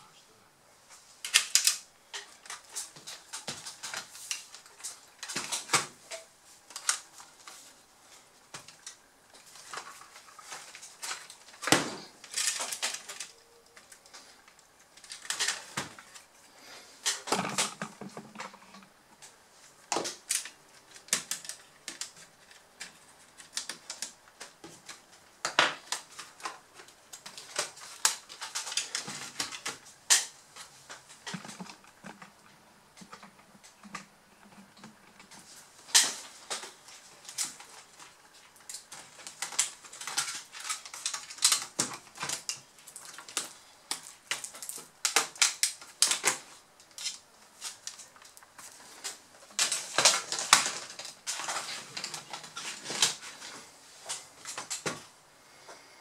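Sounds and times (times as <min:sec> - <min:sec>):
plastic laptop parts clicking: 0:01.2 - 0:07.6, 0:19.9 - 0:32.4, 0:33.0 - 0:53.2.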